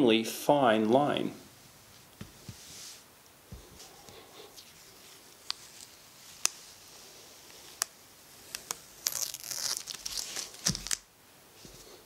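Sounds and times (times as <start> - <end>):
light ticks of tape: 5.3 - 6.6, 7.5 - 11.0
tape ripping off: 7.7 - 11.1.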